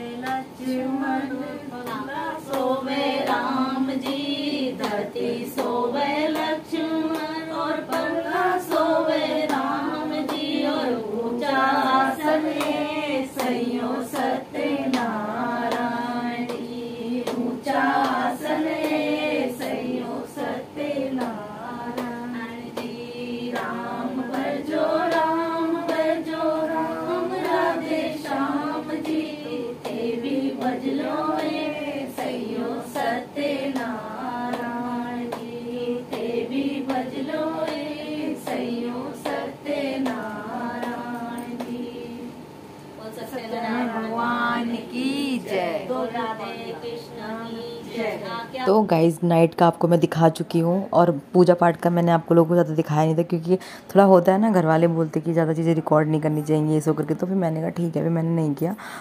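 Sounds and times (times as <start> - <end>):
women singing devotional song: 0.0 - 49.3
hand clapping: 0.2 - 0.5, 1.8 - 10.5, 12.4 - 19.0, 21.1 - 22.2, 22.8 - 26.1, 29.0 - 39.4, 40.0 - 41.8.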